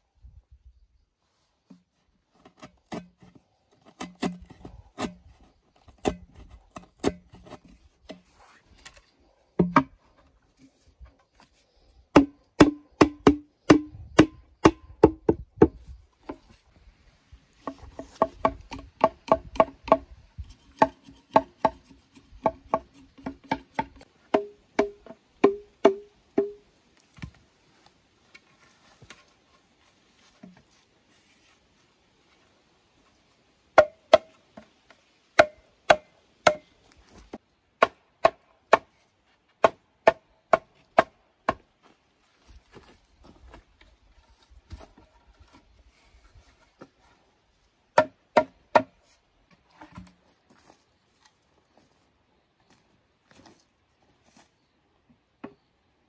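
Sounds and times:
hollow bamboo knocks: 0:09.6 - 0:10.0, 0:12.1 - 0:16.4, 0:17.6 - 0:26.6, 0:33.8 - 0:34.7, 0:35.4 - 0:36.7, 0:48.0 - 0:49.0.

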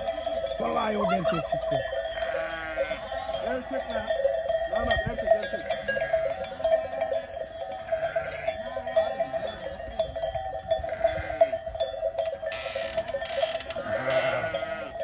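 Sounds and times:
sheep bells clanking: 0:00.0 - 0:15.0
sheep bleating: 0:00.8 - 0:04.0, 0:07.9 - 0:09.6, 0:10.8 - 0:11.6, 0:12.5 - 0:15.0.

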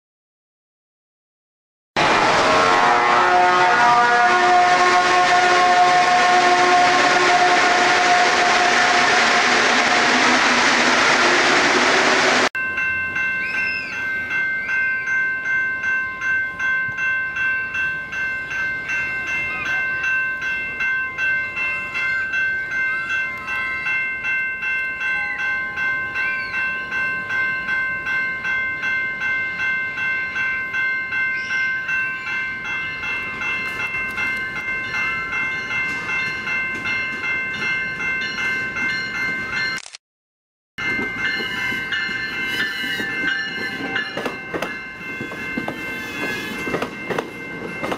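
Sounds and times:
level crossing warning bell: 0:02.0 - 0:09.0, 0:12.6 - 0:39.8, 0:40.8 - 0:47.9
train wheels passing: 0:02.0 - 0:14.9, 0:33.1 - 0:39.7, 0:40.8 - 0:47.9.

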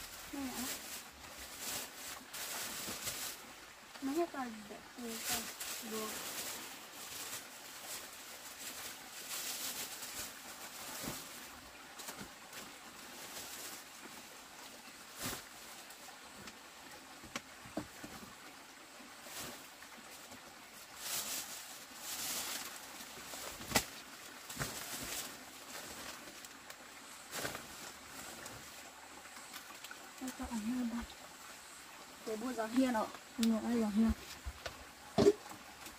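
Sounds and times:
plastic bags rustling: 0:00.0 - 0:14.0, 0:20.8 - 0:26.6, 0:27.3 - 0:28.8
objects knocking on a table: 0:35.2 - 0:35.4.

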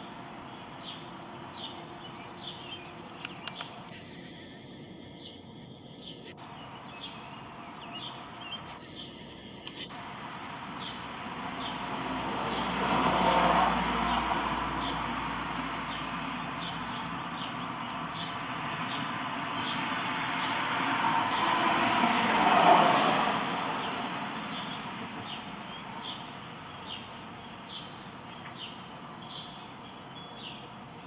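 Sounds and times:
short high bird chirps: 0:03.9 - 0:06.4, 0:08.5 - 0:09.9
vehicle passing: 0:09.6 - 0:26.1.

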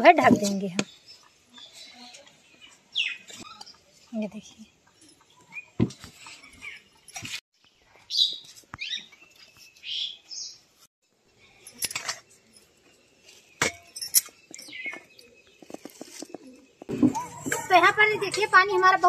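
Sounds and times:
birds chirping: 0:00.0 - 0:10.7, 0:12.4 - 0:19.0
sharp clicks and clinks: 0:11.6 - 0:12.7, 0:13.6 - 0:15.7.

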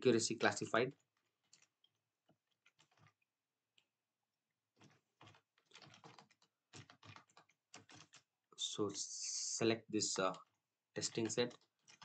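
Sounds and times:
computer keyboard typing: 0:04.8 - 0:08.3, 0:11.0 - 0:12.0.

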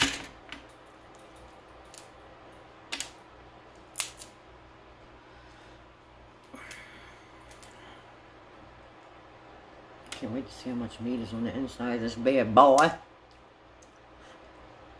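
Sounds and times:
crab shell cracking: 0:01.1 - 0:02.2, 0:03.8 - 0:04.4.

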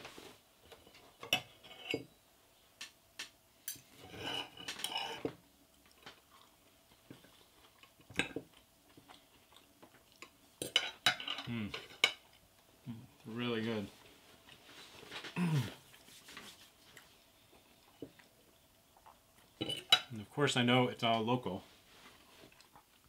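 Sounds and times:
cutlery scraping a plate: 0:01.2 - 0:02.1, 0:03.7 - 0:05.4, 0:10.6 - 0:12.2.

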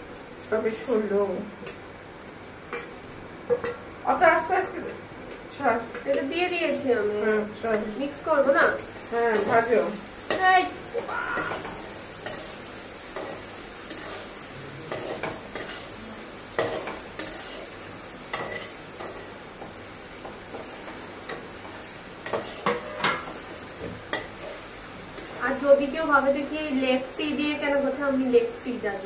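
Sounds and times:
eggs and onion sizzling in oil: 0:00.0 - 0:29.0
metal spatula scraping pan: 0:14.9 - 0:15.9, 0:16.6 - 0:19.3.

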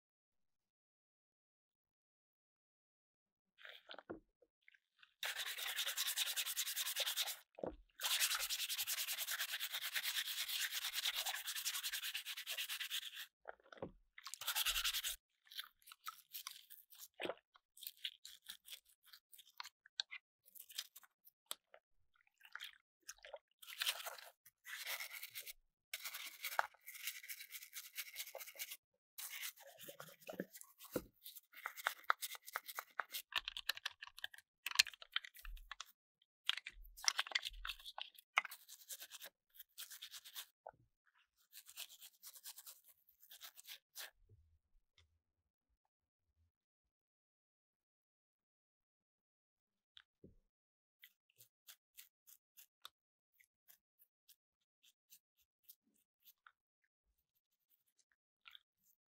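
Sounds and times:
scrubbing on hard plastic: 0:24.0 - 0:34.2.

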